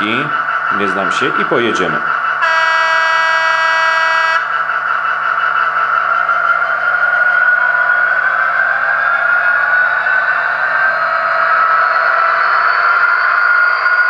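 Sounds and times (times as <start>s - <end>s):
simulated diesel engine running: 0.0s - 14.0s
model train horn blast: 2.4s - 4.5s.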